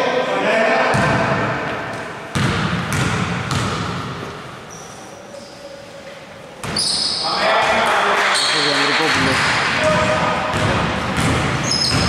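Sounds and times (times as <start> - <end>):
basketball bouncing on hardwood: 10.5 - 12.0.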